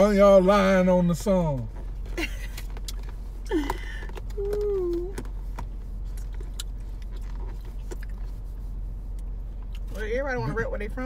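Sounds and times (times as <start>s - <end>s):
steady low hum: 0.0s - 11.0s
person humming: 4.4s - 5.2s.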